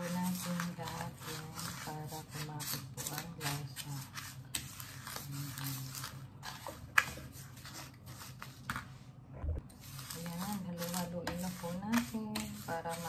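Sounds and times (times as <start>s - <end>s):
metal spoon scraping breadcrumbs: 0.0s - 8.6s, 9.8s - 13.0s.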